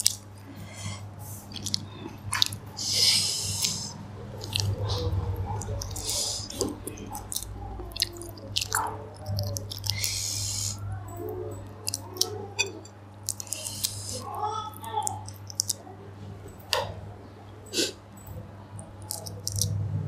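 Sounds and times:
close-up chewing: 0.0 - 15.9, 18.7 - 19.8
prawn shells crackling as peeled: 1.5 - 10.5, 11.8 - 15.8, 19.1 - 19.8.

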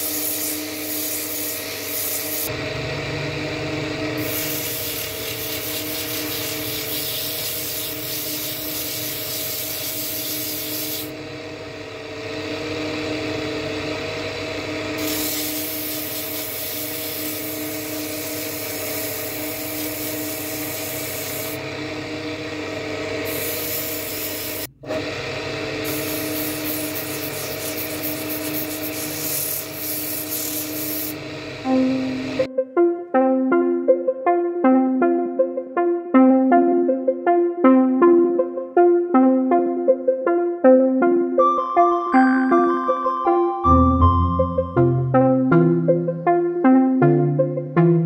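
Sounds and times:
rubbing hiss of spinning wood: 0.0 - 2.5, 4.2 - 11.1, 15.0 - 21.6, 25.8 - 31.2
wood lathe motor hum: 0.0 - 32.5.

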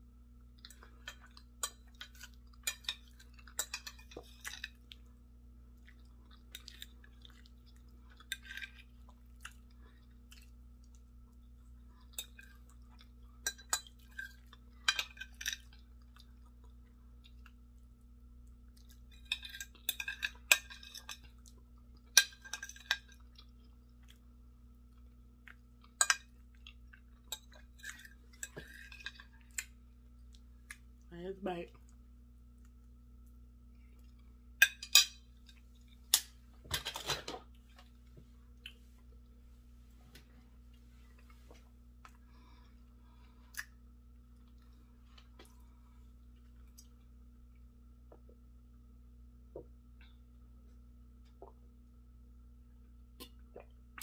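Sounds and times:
faint low hum: 0.0 - 54.0.

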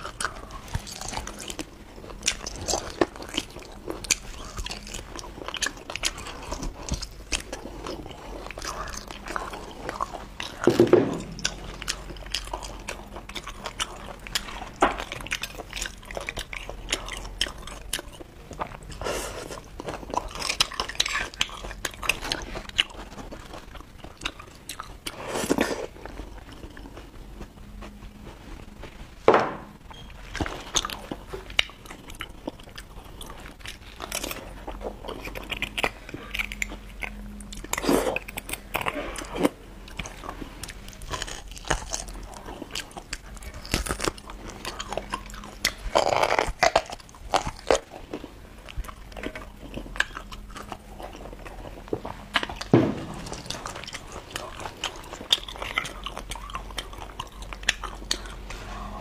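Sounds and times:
wet chewing and biting: 0.0 - 28.9, 29.8 - 58.5.

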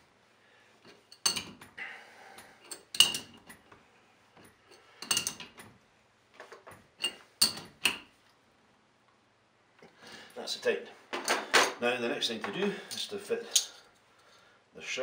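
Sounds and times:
spanner clinking on metal: 0.8 - 1.8, 2.4 - 3.7, 4.4 - 5.8, 6.7 - 8.1.

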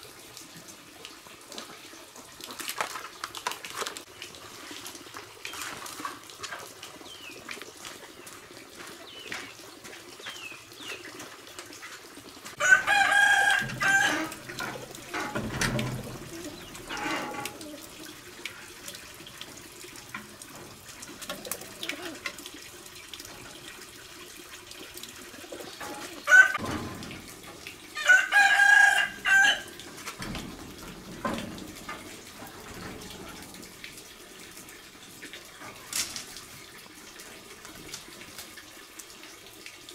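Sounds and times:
rooster crowing: 12.6 - 14.5, 26.3 - 26.6, 28.0 - 29.8.

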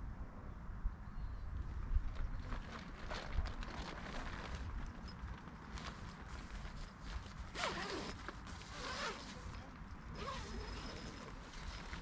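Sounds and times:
nylon fabric rustling: 2.6 - 12.0
tent zipper opening: 7.5 - 12.0.

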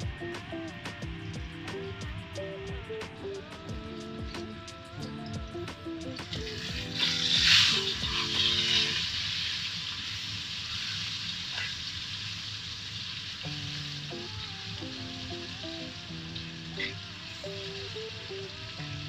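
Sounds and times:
soft background music: 0.0 - 9.4
fish sizzling in hot oil: 6.2 - 19.0.

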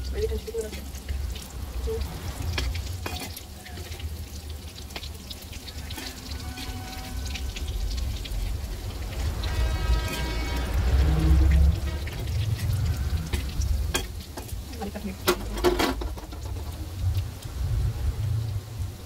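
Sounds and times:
cutlets sizzling in hot oil: 0.0 - 19.0
low rumble: 6.2 - 14.7.

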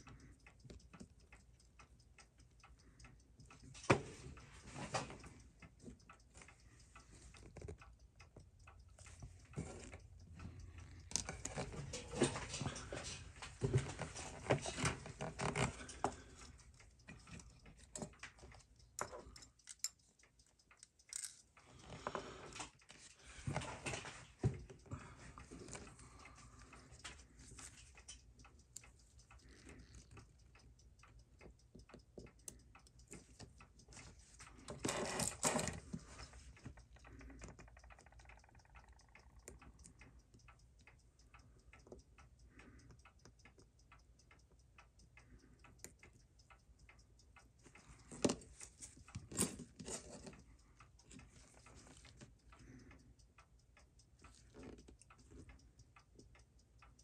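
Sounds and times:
watch ticking: 0.0 - 57.0
screwdriver and tweezers clicking: 5.9 - 24.9, 47.3 - 53.0.

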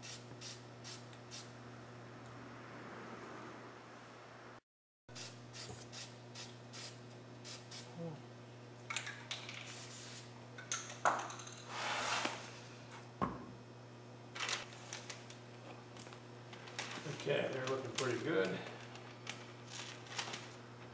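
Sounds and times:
spray can hissing: 0.0 - 1.5, 5.2 - 7.9, 9.7 - 10.3.

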